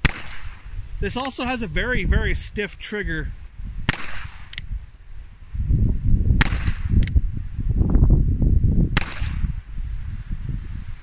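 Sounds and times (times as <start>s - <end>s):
sharp crack: 0.0s - 1.5s, 3.8s - 4.7s, 6.4s - 7.2s, 9.0s - 9.5s
wind buffeting microphone: 0.0s - 11.0s.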